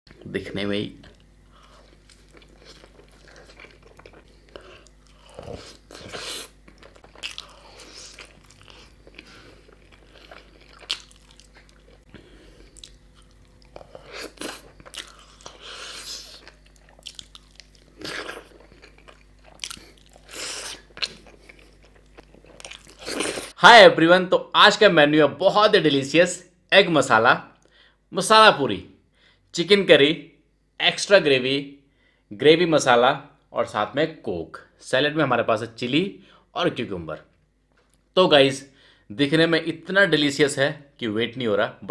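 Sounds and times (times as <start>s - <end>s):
person chewing crunchy food: 1.0s - 23.6s.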